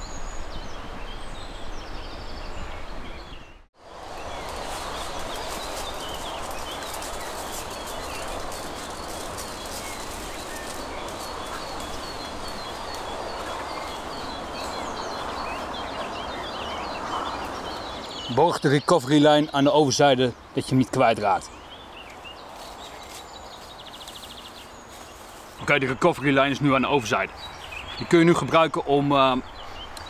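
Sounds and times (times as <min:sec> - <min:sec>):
small birds chirping faintly: 0:00.0 - 0:30.0
steady rushing noise: 0:03.8 - 0:18.2.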